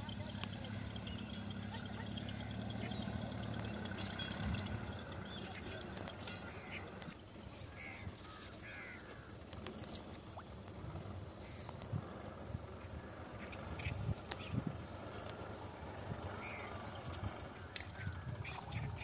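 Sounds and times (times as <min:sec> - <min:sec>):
low outdoor rumble: 0:00.0 - 0:07.2
faint chirps: 0:00.0 - 0:09.4
high-pitched insect trill: 0:07.2 - 0:09.4, 0:11.3 - 0:17.7.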